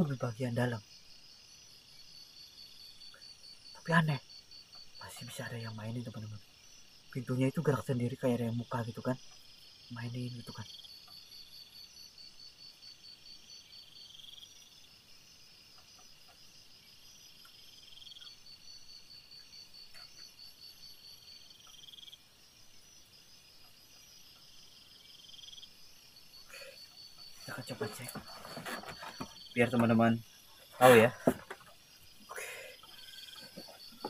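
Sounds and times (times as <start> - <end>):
buzzy insect trill: 0.0 - 34.0
insect high trill: 0.0 - 34.0
faint ticks: 9.2 - 9.6, 10.8 - 11.3, 15.6 - 16.6, 17.4 - 18.4, 23.5 - 24.6.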